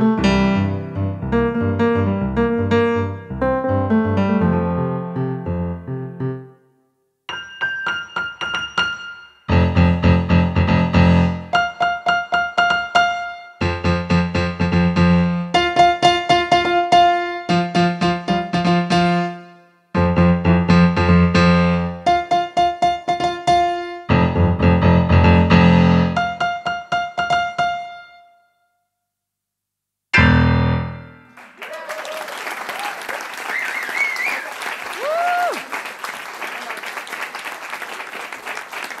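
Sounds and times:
digital pianos playing: 0.0s - 6.6s, 7.3s - 28.4s, 30.2s - 31.4s
audience applause and whoops: 31.4s - 39.0s.

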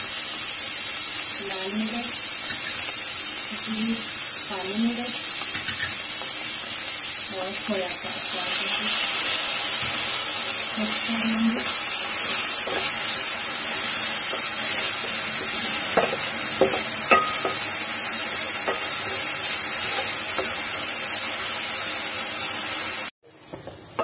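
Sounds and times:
meat sizzling in a frying pan: 0.0s - 24.0s
spatula scraping a pan: 12.2s - 21.3s.

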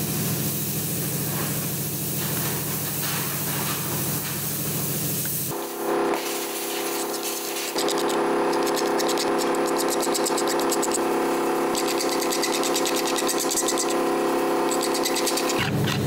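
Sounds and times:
steady machine hum: 0.0s - 16.0s
fast scratchy ticks: 7.8s - 11.0s, 11.7s - 14.0s, 14.7s - 15.7s.

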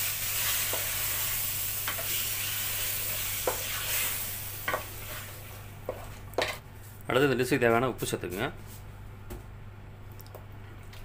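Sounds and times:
chicken sizzling in a metal pot: 0.0s - 5.6s.

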